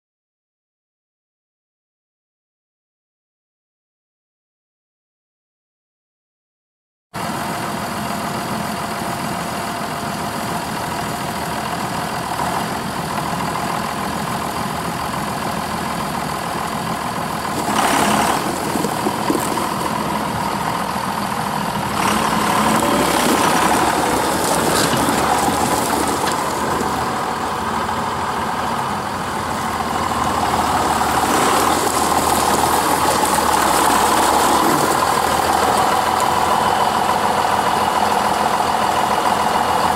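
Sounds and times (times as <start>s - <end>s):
tractor diesel engine running: 7.2s - 39.9s
tyres on gravel: 10.3s - 39.8s.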